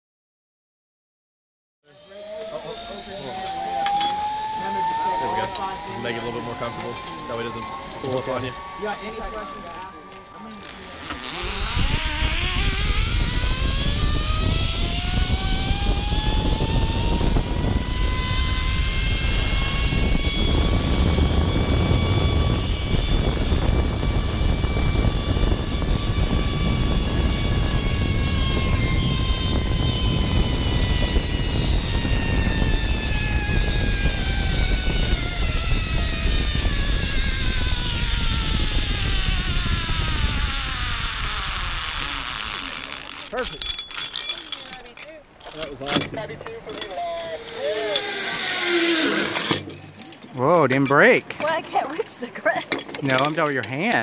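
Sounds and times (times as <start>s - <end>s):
pulley wheels whining on cable: 1.9s - 54.0s
wind on microphone: 11.0s - 43.7s.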